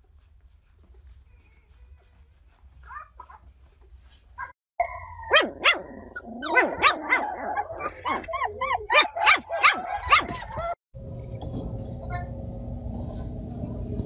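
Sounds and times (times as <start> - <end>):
puppy barking: 4.4 - 10.8.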